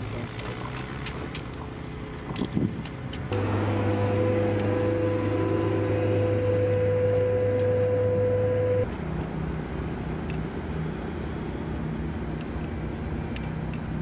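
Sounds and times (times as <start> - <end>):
faint low engine drone: 0.0 - 14.0
steady machine hum: 3.3 - 8.9.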